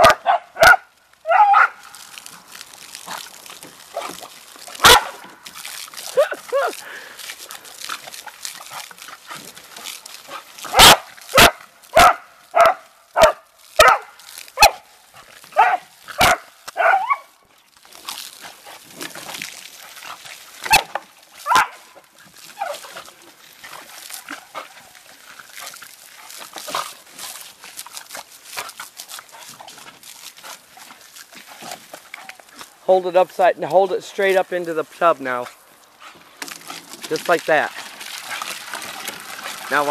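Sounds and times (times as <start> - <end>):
small dogs barking: 0.0 - 1.9, 4.8 - 5.2, 10.7 - 14.9, 15.5 - 17.3, 20.7 - 21.9.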